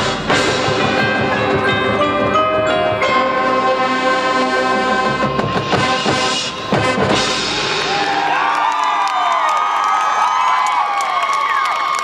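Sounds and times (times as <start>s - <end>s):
marching band brass chord: 0.0s - 8.4s
crowd cheering and whooping: 7.6s - 12.0s.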